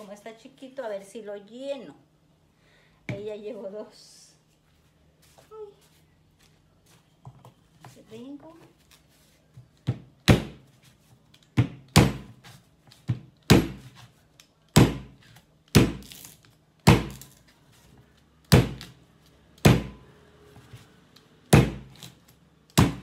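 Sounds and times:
knife chopping on wooden board: 9.8 - 10.6, 11.6 - 12.4, 13.1 - 14.0, 14.8 - 16.0, 18.5 - 18.9, 19.6 - 20.0, 21.5 - 22.0, 22.8 - 23.0.

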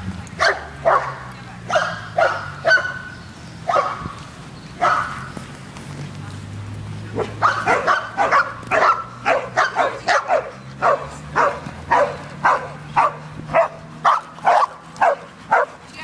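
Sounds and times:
dog barking: 0.4 - 3.1, 3.7 - 4.0, 4.8 - 5.3, 7.2 - 15.8.

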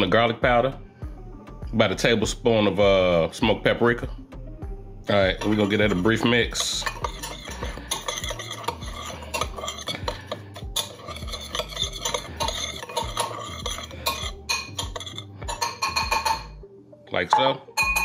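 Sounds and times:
spoon scraping spice rub: 5.2 - 16.5.

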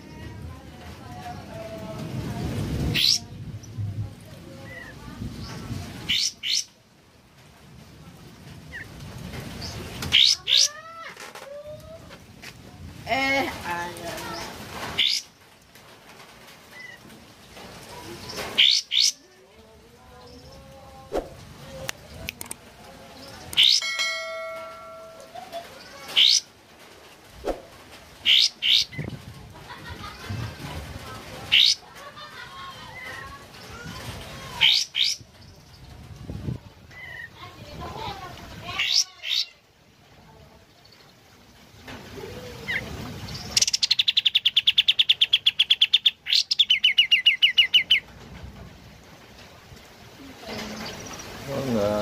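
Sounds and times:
bird singing rattling trill: 23.4 - 26.4
ringing tone: 23.8 - 25.4.

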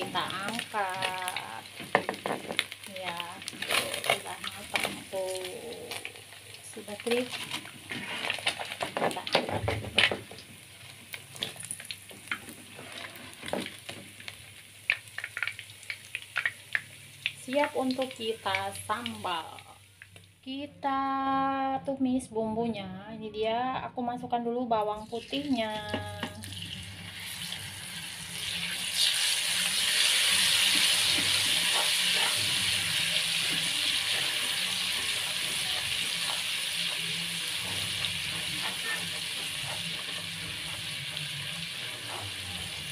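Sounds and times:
hot oil sizzling: 0.0 - 20.5, 25.0 - 42.9
oil popping and crackling: 0.0 - 20.5, 25.3 - 42.9
spatula scraping pan: 29.5 - 42.9.

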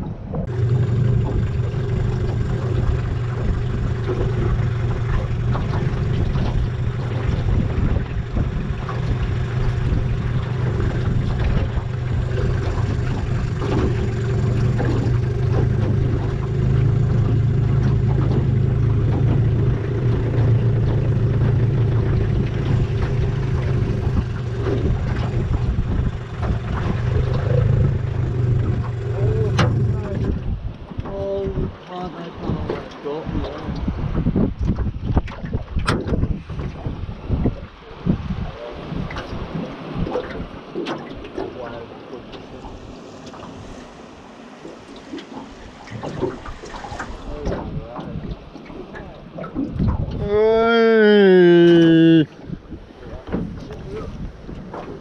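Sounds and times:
outboard motor running: 0.0 - 55.0
wind and water noise: 0.0 - 55.0.

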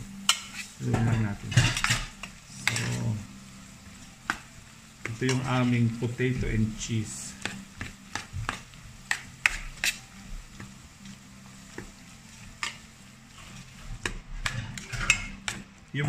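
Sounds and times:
spoon stirring potatoes in pot: 0.2 - 15.8
spoon clicking and scraping pot: 0.3 - 0.7, 7.4 - 10.0, 12.6 - 15.6.

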